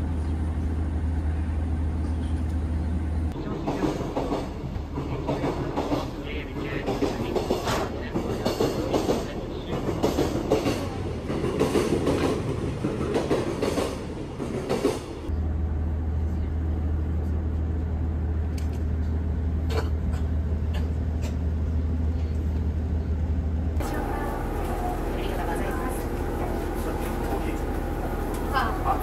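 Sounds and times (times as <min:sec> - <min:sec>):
railcar engine humming: 0:00.0 - 0:29.0
background chatter: 0:23.8 - 0:29.0
passengers' footsteps and shuffling: 0:23.8 - 0:29.0.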